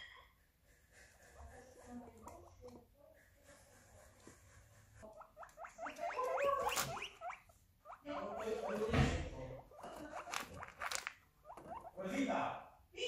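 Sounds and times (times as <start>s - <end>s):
guinea pig squeaking: 1.6s - 2.9s, 5.0s - 12.3s.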